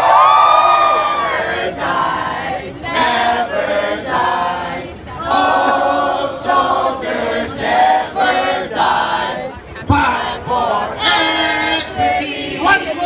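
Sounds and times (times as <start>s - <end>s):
crowd chanting in unison: 0.8s - 13.0s.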